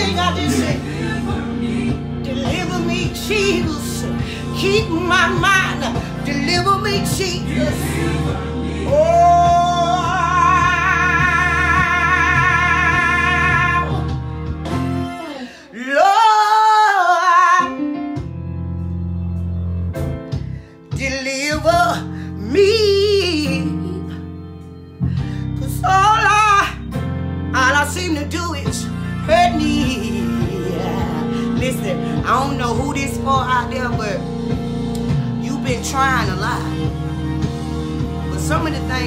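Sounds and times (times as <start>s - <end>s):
instrumental accompaniment: 0.0s - 15.6s, 26.8s - 39.0s
woman singing gospel: 0.0s - 18.0s, 20.9s - 24.2s, 25.3s - 26.8s, 27.6s - 34.6s, 35.4s - 37.0s, 38.2s - 39.0s.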